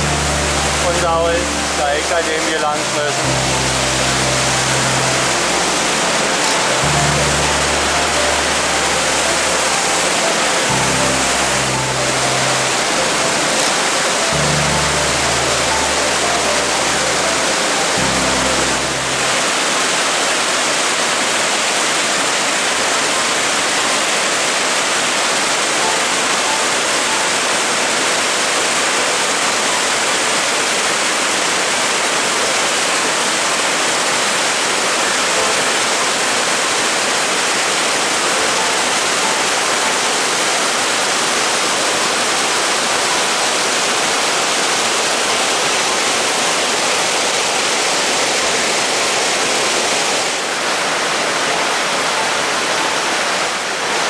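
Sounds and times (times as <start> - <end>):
waterfall rushing over rocks: 0.0 - 54.0.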